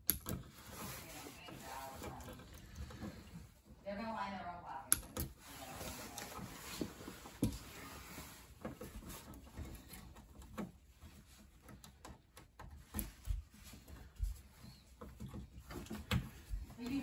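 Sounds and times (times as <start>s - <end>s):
small clicks and taps of wiring: 0.0s - 0.5s, 4.9s - 5.3s.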